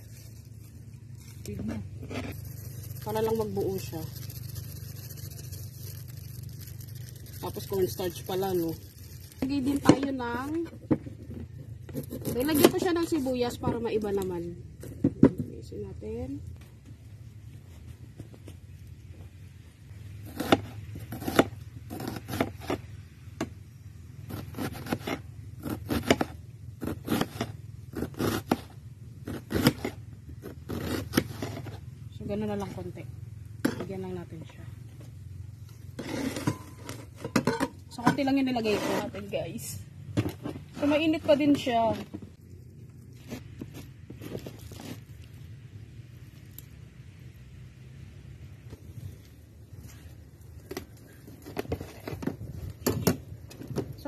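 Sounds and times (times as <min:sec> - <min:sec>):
spoon scraping foil tray: 0:36.0 - 0:39.3.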